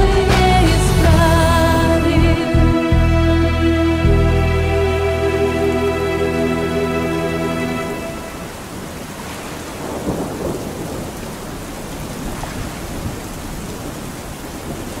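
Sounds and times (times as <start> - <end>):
steady rain: 3.9 - 15.0
thunder rumbling: 7.9 - 15.0.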